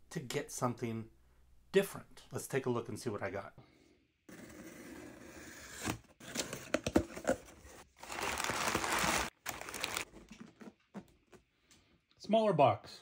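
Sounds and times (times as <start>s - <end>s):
cardboard box being opened: 5.6s - 10.7s
packing paper rustling and crinkling: 7.2s - 10.8s.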